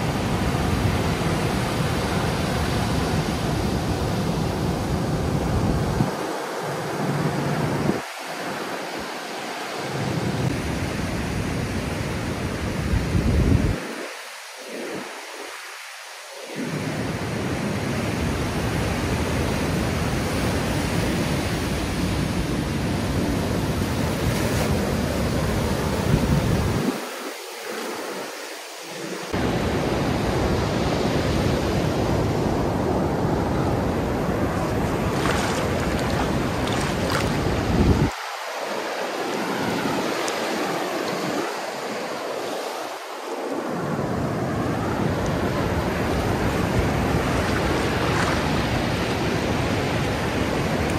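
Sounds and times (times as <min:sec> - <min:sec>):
wind rumble on microphone: 0:00.0 - 0:08.1, 0:10.0 - 0:15.6, 0:16.5 - 0:27.2, 0:29.0 - 0:42.6, 0:43.3 - 0:50.9
waves breaking on a beach: 0:00.0 - 0:50.9.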